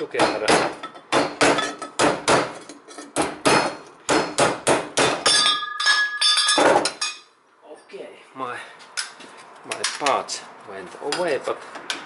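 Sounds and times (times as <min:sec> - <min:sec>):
metal pipe clanging: 0:00.2 - 0:03.9, 0:05.1 - 0:07.3
hammer striking steel pipe: 0:03.2 - 0:06.9.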